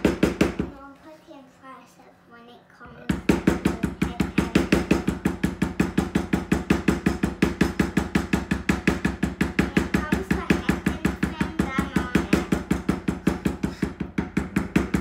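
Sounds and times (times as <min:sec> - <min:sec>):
maul striking leather stamping tool: 0:00.0 - 0:00.7, 0:03.2 - 0:10.0, 0:12.1 - 0:15.0.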